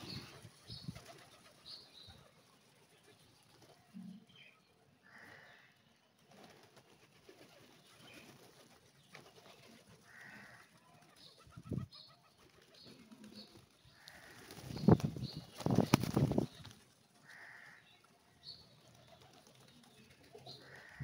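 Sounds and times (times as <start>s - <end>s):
pigeon wings flapping: 0.0s - 1.6s, 6.2s - 11.5s, 12.4s - 17.0s, 18.9s - 19.9s
pigeons cooing softly: 0.0s - 21.0s.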